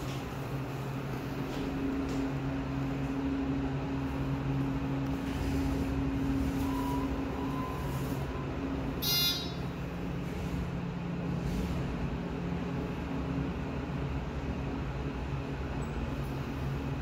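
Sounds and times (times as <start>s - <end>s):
elevator low hum: 0.0s - 17.0s
buzzing electronic beep: 9.0s - 9.7s.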